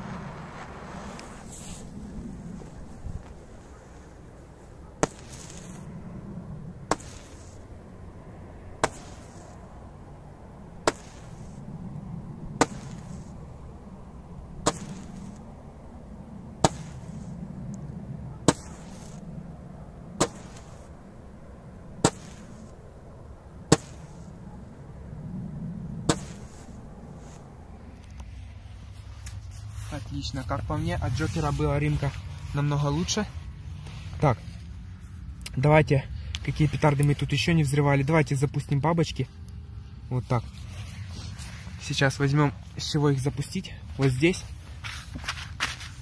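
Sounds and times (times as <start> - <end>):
roman candle firing shots: 8.8 - 9.5, 10.8 - 11.6, 12.5 - 13.3, 14.6 - 15.4, 20.2 - 20.9, 22.0 - 22.7, 23.7 - 24.4, 26.0 - 26.7.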